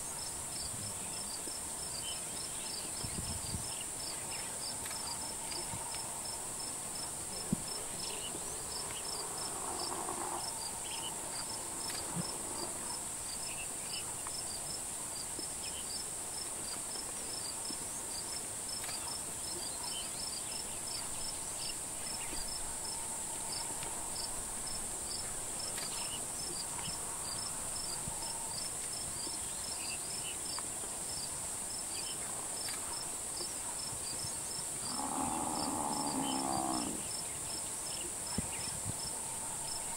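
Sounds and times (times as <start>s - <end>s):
insect chirps: 0.0s - 39.9s
high-pitched insect drone: 34.8s - 37.2s.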